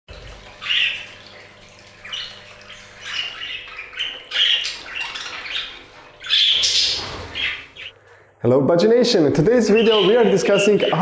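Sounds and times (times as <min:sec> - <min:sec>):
water running from a fountain: 0:00.1 - 0:07.9
budgerigars chirping and squawking: 0:00.2 - 0:08.0, 0:09.5 - 0:11.0.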